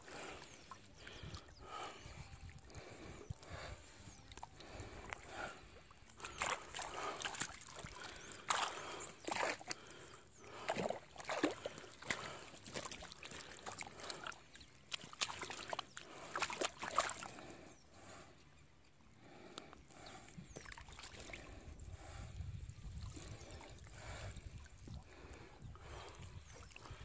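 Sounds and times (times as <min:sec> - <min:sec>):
water sloshing and splashing: 0:02.4 - 0:17.6, 0:20.5 - 0:21.6.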